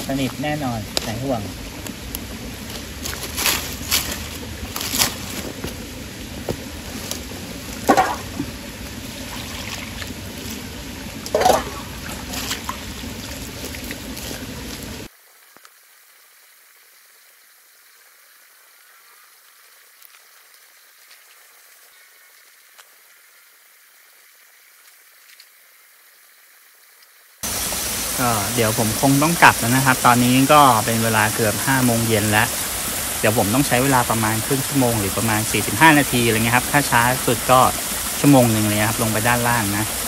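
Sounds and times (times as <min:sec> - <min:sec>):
stream rushing: 0:00.0 - 0:15.1, 0:27.4 - 0:40.0
water splashes: 0:00.0 - 0:15.1, 0:27.4 - 0:40.0
faint steady hiss: 0:00.0 - 0:40.0.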